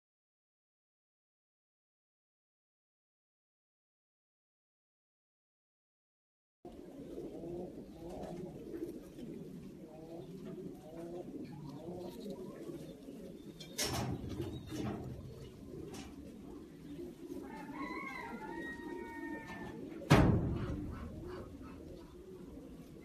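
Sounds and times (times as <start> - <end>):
pigeon cooing: 6.7 - 23.0
sudden thumps: 20.1 - 21.5.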